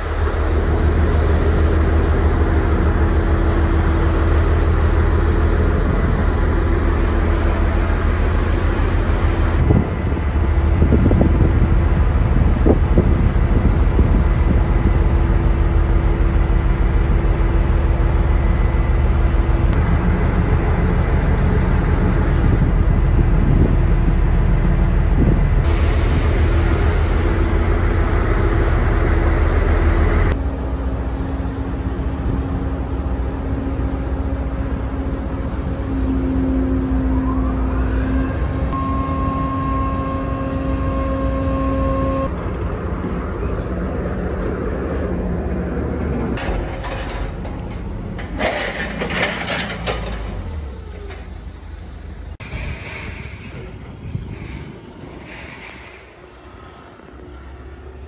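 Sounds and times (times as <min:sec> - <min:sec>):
churning wake rushing: 0:00.0 - 0:38.8
ship engines rumbling: 0:00.0 - 0:58.0
wind on microphone: 0:09.1 - 0:15.6, 0:21.5 - 0:28.3, 0:52.4 - 0:56.4.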